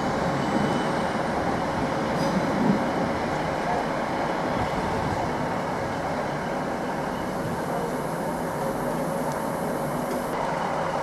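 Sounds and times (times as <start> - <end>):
train wheels rumbling on rail: 0.0 - 11.0
faint high whine: 6.4 - 10.4.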